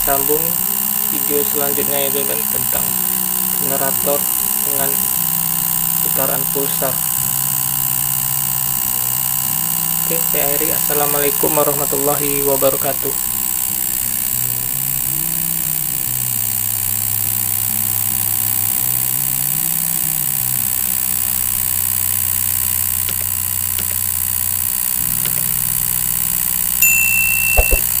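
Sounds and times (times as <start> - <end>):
pulse motor electric hum: 0.0 - 28.0
short high beep: 26.8 - 28.0.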